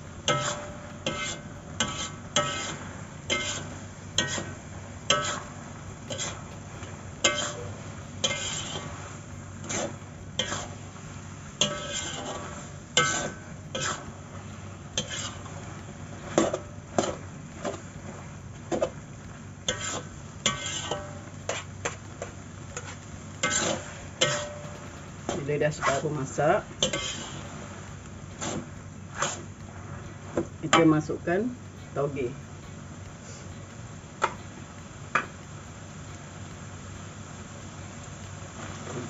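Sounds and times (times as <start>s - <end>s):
spatula scraping steel wok: 0.0s - 31.1s
steady low hum: 0.0s - 39.0s.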